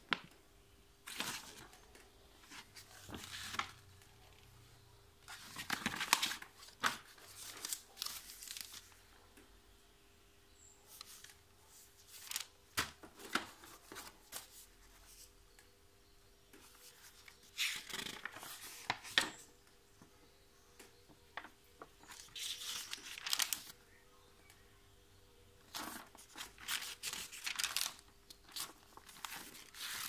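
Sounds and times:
paper leaflets rustling and crinkling: 1.1s - 3.8s, 5.3s - 9.0s, 10.9s - 15.3s, 21.3s - 23.8s, 25.6s - 30.0s.

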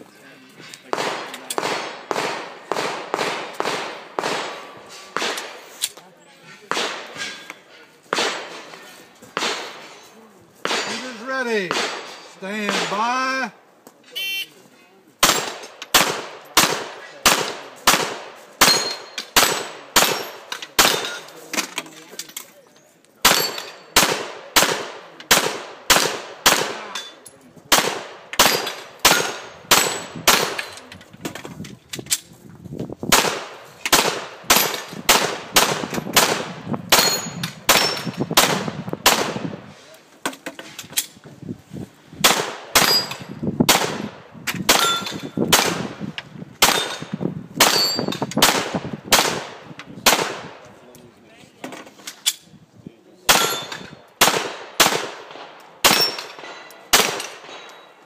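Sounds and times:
pistol shots: 0.9s - 5.6s, 6.7s - 7.3s, 8.1s - 8.6s, 9.4s - 9.8s, 10.6s - 11.0s, 11.6s - 13.1s, 15.2s - 21.3s, 23.2s - 30.8s, 33.1s - 39.6s, 42.2s - 46.0s, 46.6s - 50.6s, 53.3s - 57.8s
steel targets clanging: 18.6s - 22.5s, 23.2s - 24.0s, 36.9s - 38.2s, 42.8s - 43.4s, 44.7s - 45.4s, 46.7s - 48.3s, 53.3s - 54.0s, 55.9s - 58.0s.

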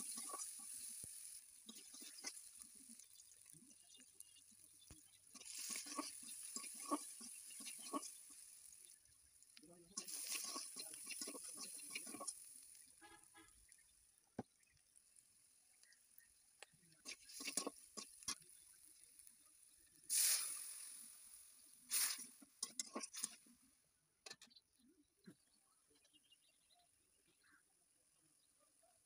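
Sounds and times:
spatula scraping and stirring: 0.0s - 9.0s, 9.8s - 13.2s, 16.9s - 19.4s, 21.9s - 23.5s
onions frying in oil: 0.0s - 23.4s
water sizzling in hot pan: 0.0s - 23.4s.

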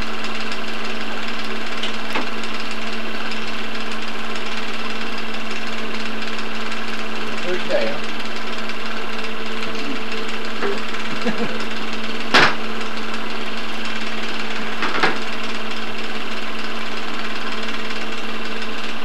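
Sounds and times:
film projector whirring: 0.0s - 19.0s.

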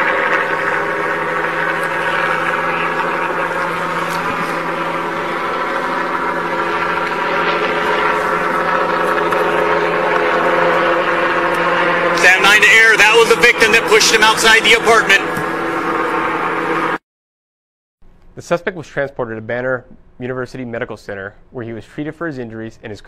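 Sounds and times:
helicopter hovering: 0.0s - 17.0s.

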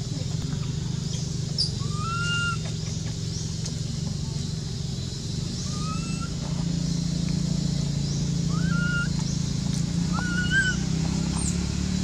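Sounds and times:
low mechanical hum: 0.0s - 12.0s
rising whistle-like call: 8.5s - 9.1s, 10.1s - 10.8s.

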